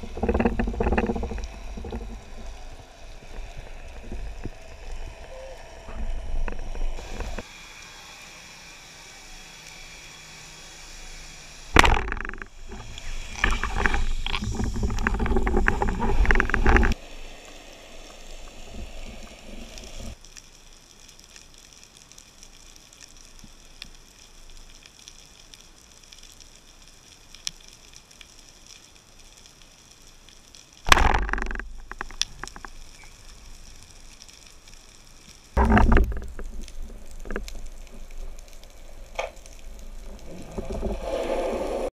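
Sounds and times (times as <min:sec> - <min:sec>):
faint underwater hiss: 0:16.9 - 0:20.2.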